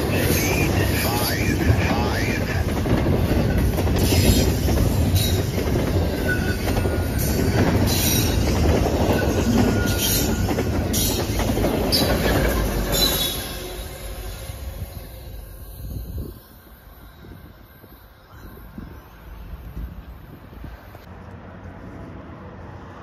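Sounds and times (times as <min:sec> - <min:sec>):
freight train rumble and clatter: 0:00.0 - 0:23.0
wheels squealing: 0:03.1 - 0:20.8.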